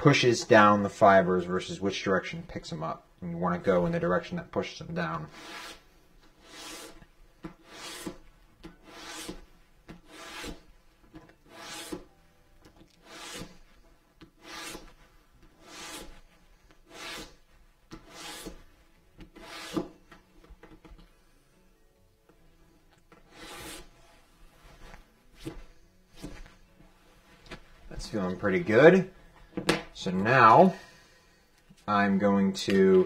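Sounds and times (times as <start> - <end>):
sandpaper rubbing leather edge: 5.3 - 5.8, 6.4 - 7.0, 7.6 - 8.2, 8.8 - 10.6, 11.5 - 12.1, 13.0 - 13.7, 14.4 - 15.0, 15.6 - 17.4, 18.0 - 18.6, 19.3 - 19.9, 23.3 - 24.2.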